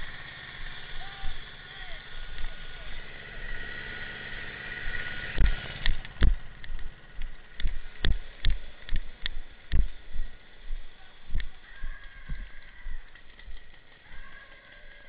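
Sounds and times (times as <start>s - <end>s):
camera jostling: 11.3s - 15.0s.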